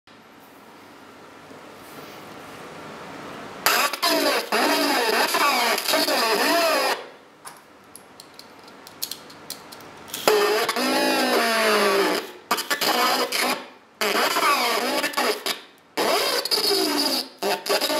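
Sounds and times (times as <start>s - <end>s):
distorted toy chatter: 3.7s - 7.0s, 10.2s - 17.9s.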